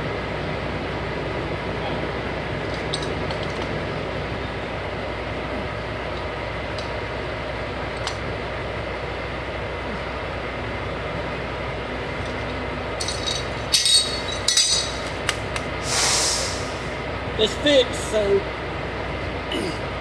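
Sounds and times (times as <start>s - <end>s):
engine rumble: 0.0s - 20.0s
metal wrenches clinking and scraping: 13.0s - 15.1s.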